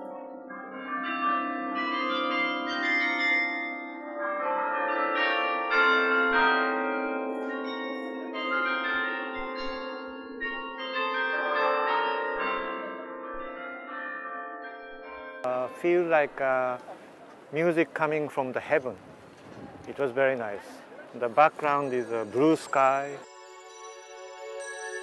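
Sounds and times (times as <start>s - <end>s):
carillon bells playing a melody: 0.0s - 16.4s, 21.5s - 25.0s.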